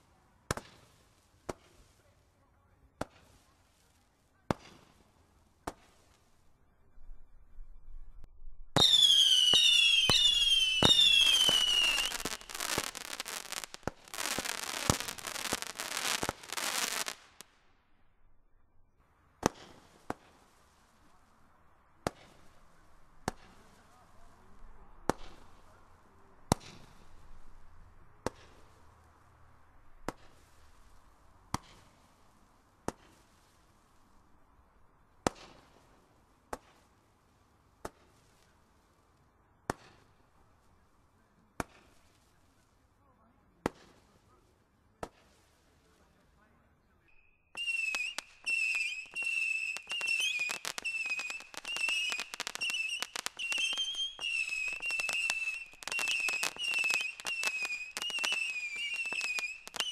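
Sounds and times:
rapid firework popping: 8.8s - 17.5s, 47.6s - 59.9s
whistling firework shots: 8.8s - 17.5s, 47.0s - 59.9s
firework bangs: 8.8s - 17.6s, 19.4s - 21.2s, 22.0s - 27.6s, 28.2s - 28.9s, 29.9s - 32.2s, 47.6s - 59.9s.

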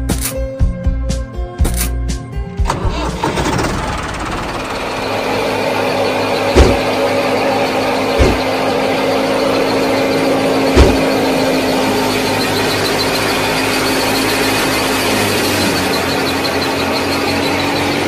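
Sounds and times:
sharp knocks: 6.6s - 6.9s, 8.2s - 8.5s, 10.7s - 11.1s.

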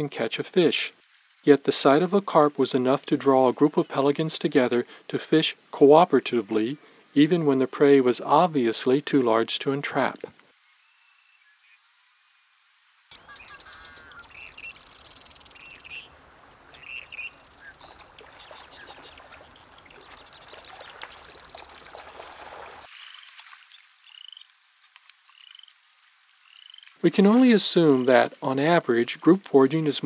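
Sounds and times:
steady noisy hiss: 0.0s - 30.0s
high chirping calls: 13.1s - 23.2s.

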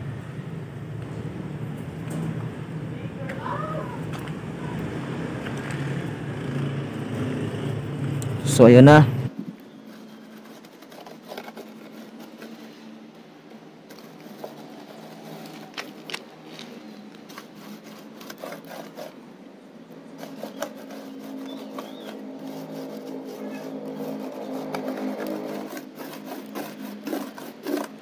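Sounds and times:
paint roller scraping: 9.7s - 13.0s, 13.8s - 19.2s, 20.0s - 28.0s.

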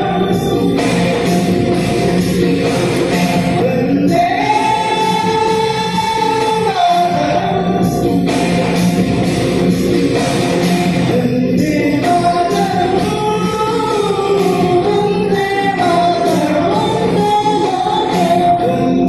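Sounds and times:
vocal group singing in harmony: 0.0s - 8.4s, 10.9s - 19.0s.

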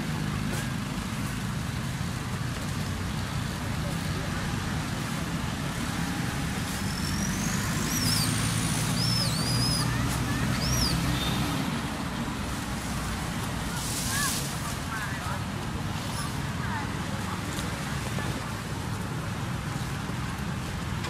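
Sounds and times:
low rumble of road traffic: 0.0s - 21.0s
high whistled chirps: 6.8s - 11.4s
rising whistle: 6.9s - 10.0s.

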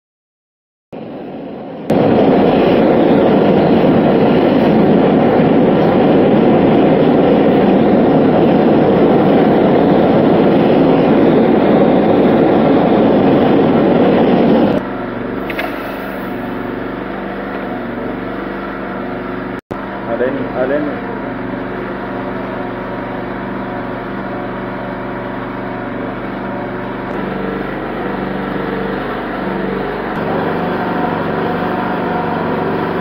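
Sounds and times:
blowtorch flame blowing: 15.4s - 17.9s.

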